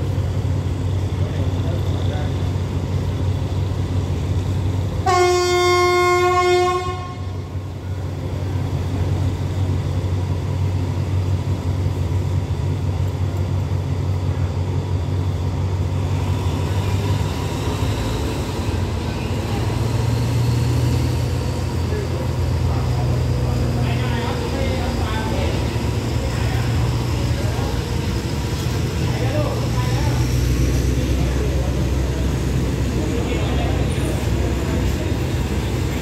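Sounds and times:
locomotive engine rumble: 0.0 - 36.0
train horn blast: 5.0 - 7.4.

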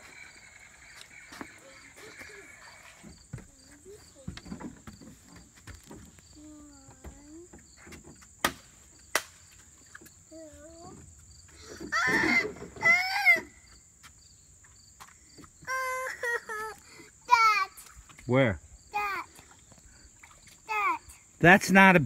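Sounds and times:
insects chirping: 0.0 - 22.0
child's voice: 1.6 - 4.7, 6.3 - 7.6, 10.3 - 11.0, 15.7 - 17.9, 18.9 - 19.4, 20.7 - 21.2.

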